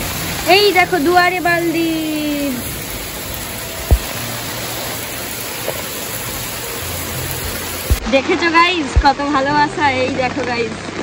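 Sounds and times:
heavy rain hissing: 0.0s - 10.9s
sharp low thump: 3.8s - 4.2s.

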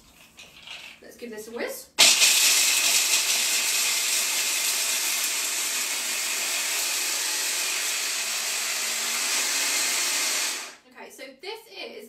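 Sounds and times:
hand blender chopping nuts: 2.0s - 10.8s.

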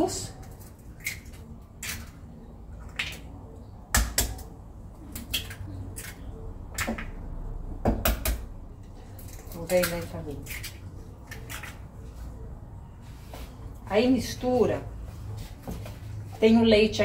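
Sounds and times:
eggs cracking against a bowl: 0.0s - 12.0s.

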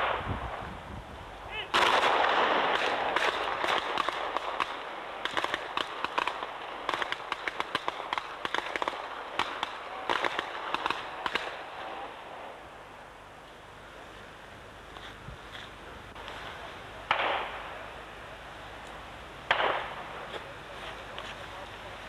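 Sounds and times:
pistol shots: 1.7s - 12.0s, 17.0s - 17.8s, 19.5s - 20.2s.

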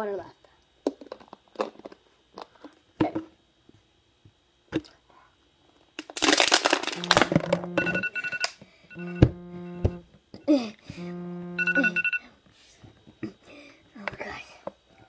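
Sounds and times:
plastic water bottles crackling: 6.0s - 7.5s
steady electronic tones: 7.0s - 10.1s, 11.0s - 12.2s.

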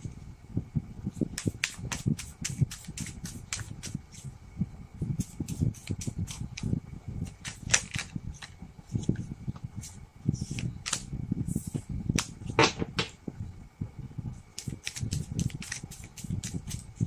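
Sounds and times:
cards being shuffled: 1.4s - 4.0s, 7.3s - 9.1s, 9.8s - 11.1s, 14.6s - 16.8s.

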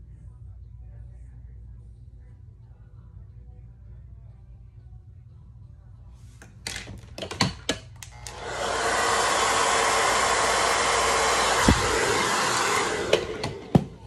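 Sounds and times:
hair dryer blowing: 8.1s - 14.0s.

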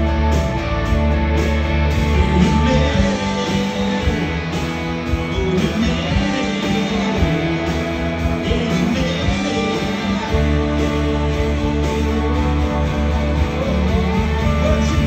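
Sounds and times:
electric guitar: 0.0s - 15.0s
rock band playing live: 0.0s - 15.0s.

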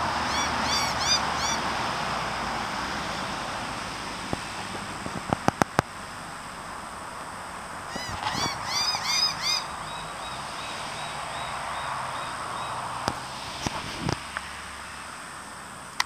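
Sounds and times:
birds calling: 0.0s - 3.4s, 7.8s - 14.0s.

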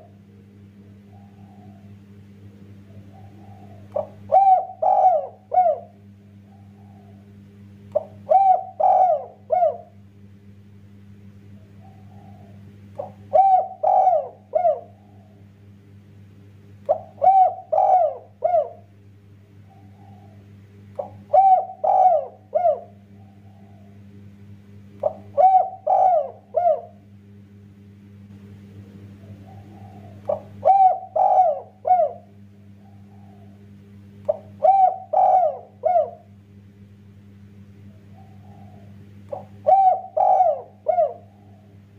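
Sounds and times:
dove cooing: 0.0s - 0.2s, 0.8s - 10.0s, 11.4s - 15.5s, 16.8s - 24.1s, 25.0s - 27.2s, 29.0s - 36.4s, 37.8s - 41.9s
soft low murmur: 0.0s - 10.0s, 11.3s - 13.4s, 18.1s - 21.3s, 22.3s - 24.1s, 28.2s - 31.0s, 31.7s - 34.7s, 37.8s - 40.1s, 40.7s - 41.9s.

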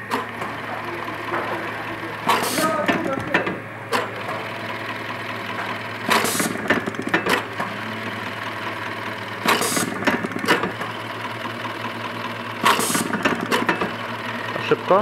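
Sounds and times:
sewing machine humming: 0.0s - 15.0s
button feeder clatter: 12.6s - 14.0s.

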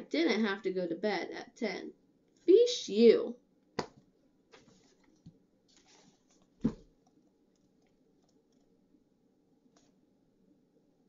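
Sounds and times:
paper rustling: 4.5s - 6.9s
book thump: 6.6s - 6.9s.

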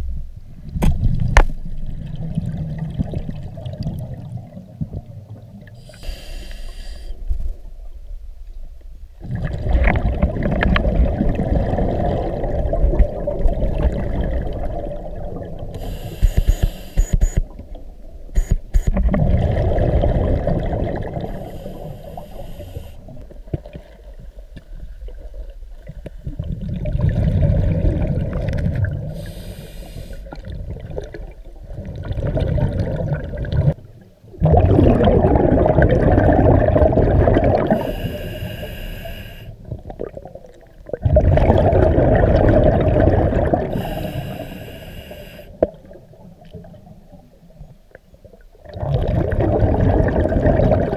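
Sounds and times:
hissing regulator inhales: 5.8s - 7.2s, 15.7s - 17.4s, 21.3s - 23.1s, 29.2s - 30.3s, 37.7s - 39.6s, 43.7s - 45.6s
bubbling underwater exhales: 9.2s - 17.0s, 19.0s - 24.0s, 25.0s - 47.6s, 48.3s - 50.9s.

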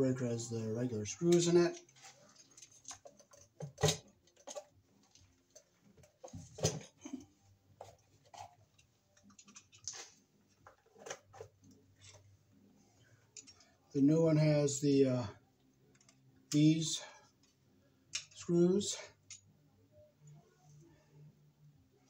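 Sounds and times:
tools being handled: 1.2s - 12.3s, 13.3s - 13.8s.

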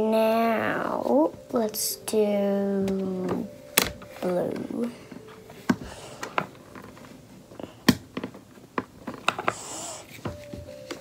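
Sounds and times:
plastic paint pots clicking: 7.8s - 9.6s.

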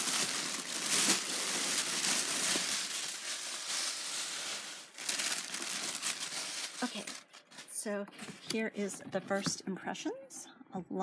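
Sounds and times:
packing material crinkling: 0.0s - 7.8s.

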